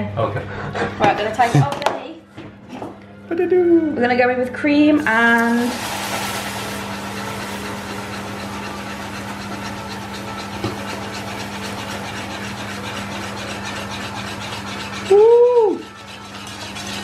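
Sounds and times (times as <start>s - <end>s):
caramel hissing and bubbling: 5.0s - 17.0s
whisk beating metal saucepan: 5.0s - 17.0s.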